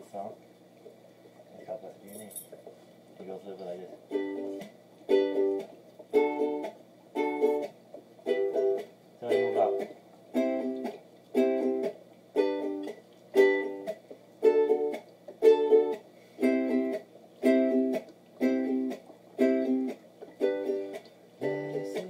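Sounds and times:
ukulele strumming chords: 4.0s - 22.0s.

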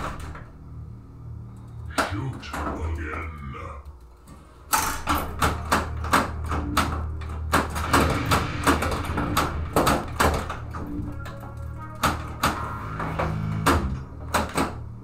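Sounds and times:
pinball electronic music: 4.7s - 15.0s
low bass drone: 5.9s - 15.0s.

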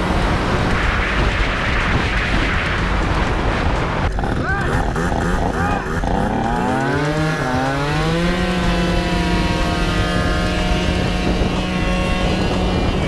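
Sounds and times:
scooter engine revving: 4.1s - 13.0s.

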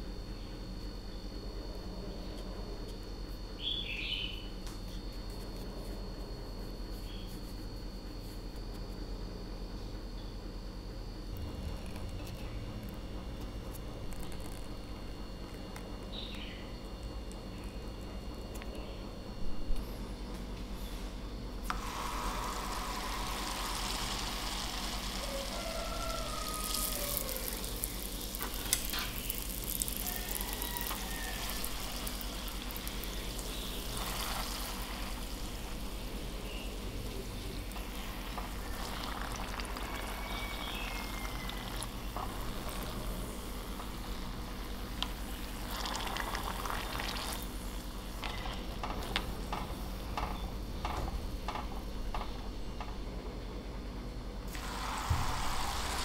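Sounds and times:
food sizzling in hot oil: 21.7s - 36.8s, 37.7s - 48.5s, 54.5s - 56.0s.

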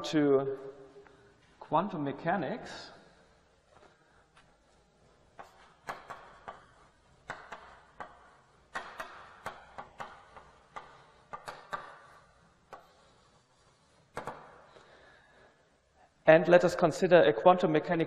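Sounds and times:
chalk tapping and scratching: 5.3s - 14.7s.

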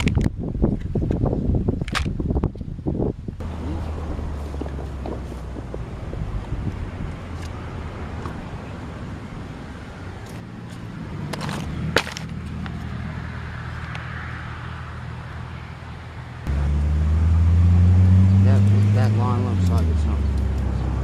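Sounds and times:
loud low hum: 3.3s - 10.0s, 14.4s - 21.0s
steady low hum: 3.3s - 13.5s.

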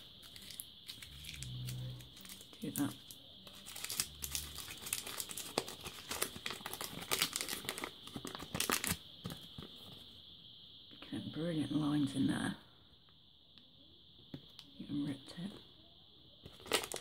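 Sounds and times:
paper crinkling: 0.0s - 2.6s, 3.4s - 10.0s, 16.5s - 17.0s.

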